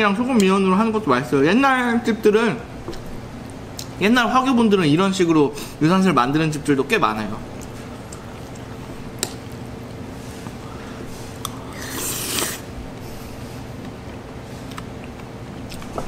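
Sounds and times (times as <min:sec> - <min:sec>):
steady low hum: 0:00.0 - 0:16.0
hissing slurp: 0:11.7 - 0:12.7.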